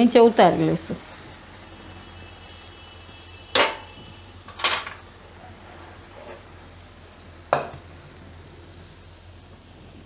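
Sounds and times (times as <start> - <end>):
metal spatula clanking on wok: 3.5 - 3.9
wok set down on counter: 7.5 - 7.8.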